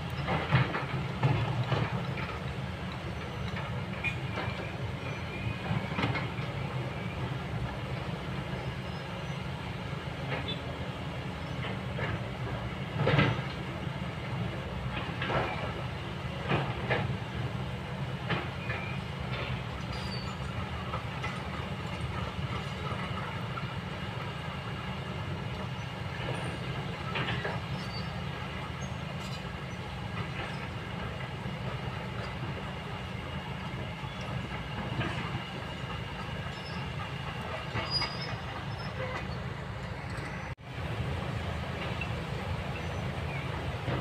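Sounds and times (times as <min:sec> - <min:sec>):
excavator diesel engine: 0:00.0 - 0:44.0
clanks and knocks: 0:00.1 - 0:04.7, 0:12.9 - 0:13.6, 0:34.0 - 0:40.6.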